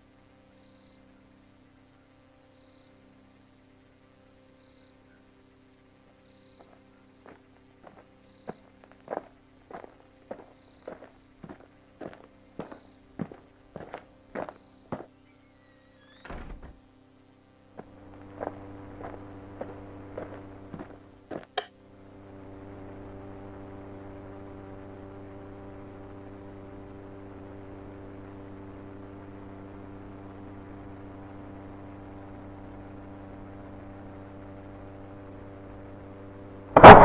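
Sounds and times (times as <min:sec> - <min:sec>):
low electrical hum: 0:00.0 - 0:37.0.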